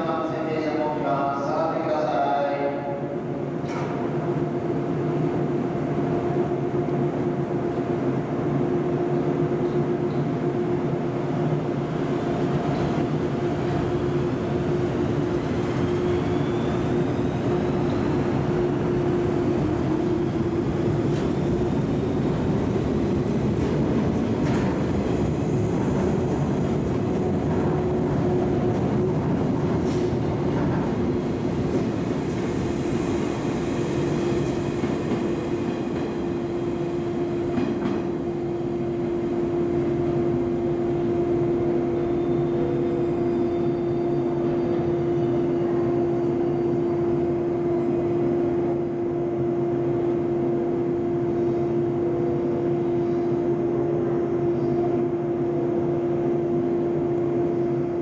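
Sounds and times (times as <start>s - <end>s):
train equipment hum: 3.0s - 58.0s
train wheels rumbling: 11.9s - 41.1s.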